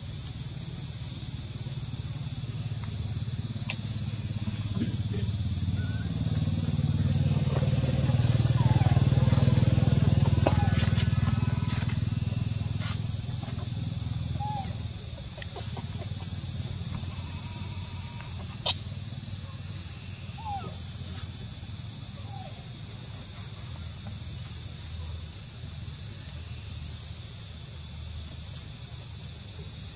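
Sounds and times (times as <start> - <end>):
insects buzzing: 0.0 - 29.9
faint rising chirps: 2.7 - 19.2.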